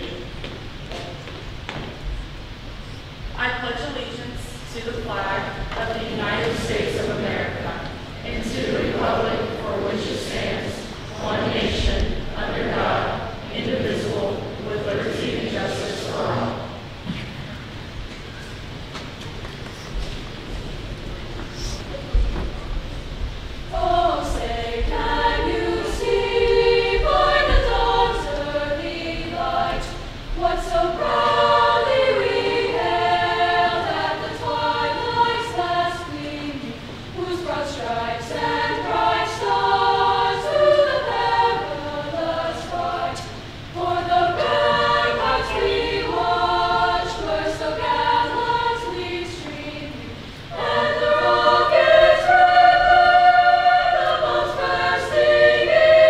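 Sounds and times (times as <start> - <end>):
choir singing: 4.7 - 17.0, 23.6 - 56.0.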